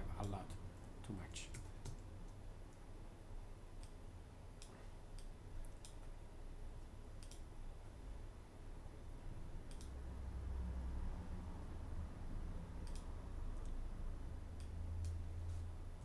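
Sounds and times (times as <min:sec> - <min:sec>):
faint low hum: 0:00.0 - 0:16.0
mouse and keyboard clicks: 0:07.2 - 0:07.5, 0:09.7 - 0:10.0.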